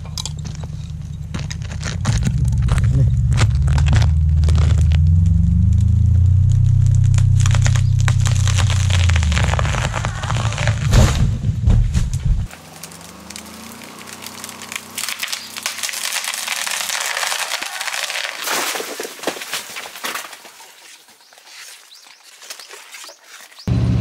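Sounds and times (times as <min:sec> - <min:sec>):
faint engine: 0:00.0 - 0:16.9, 0:23.7 - 0:24.0
branches snapping and crackling: 0:00.0 - 0:23.7.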